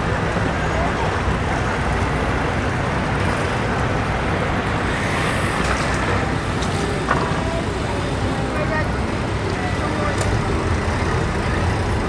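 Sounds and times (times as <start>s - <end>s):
water: 0.0s - 12.0s.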